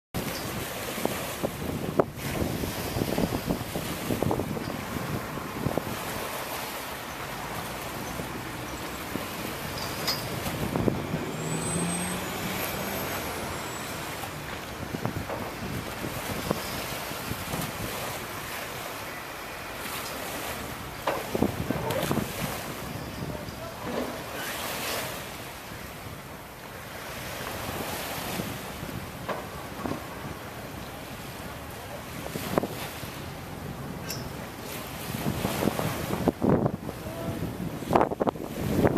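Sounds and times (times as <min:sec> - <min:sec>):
wind buffeting microphone: 0:00.2 - 0:18.2, 0:21.2 - 0:23.6, 0:34.9 - 0:38.9
engine hum: 0:00.2 - 0:22.3
short splashes: 0:00.2 - 0:22.8
water washing and lapping: 0:00.2 - 0:38.9.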